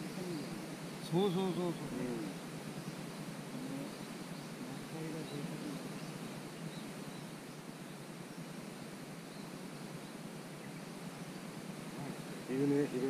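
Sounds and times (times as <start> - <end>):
faint bird chirps: 0.0 - 13.0
steady background hiss: 0.0 - 13.0.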